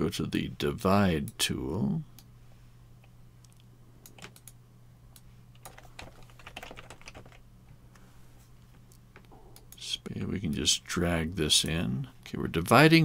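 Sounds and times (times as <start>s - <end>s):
faint low hum: 0.0s - 13.0s
typing on computer keyboard: 5.6s - 7.4s.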